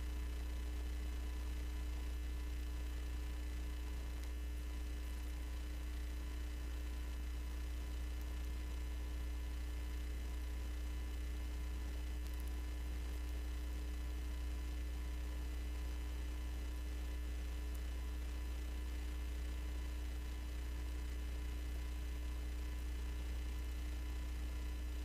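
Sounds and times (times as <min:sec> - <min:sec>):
low electrical hum: 0:00.0 - 0:25.0.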